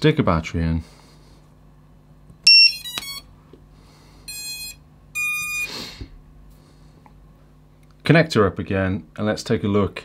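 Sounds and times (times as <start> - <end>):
electronic startup beeps: 2.5 - 3.2.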